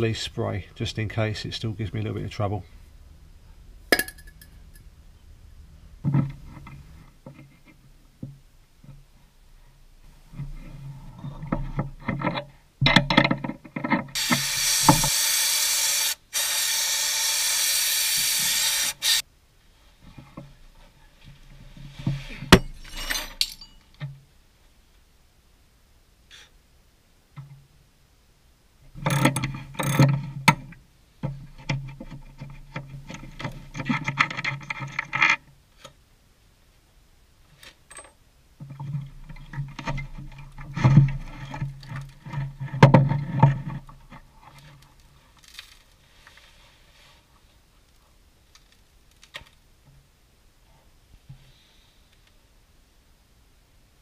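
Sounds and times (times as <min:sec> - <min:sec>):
tools scraping and rattling: 0:20.1 - 0:24.0
metal clanks: 0:22.2 - 0:24.2.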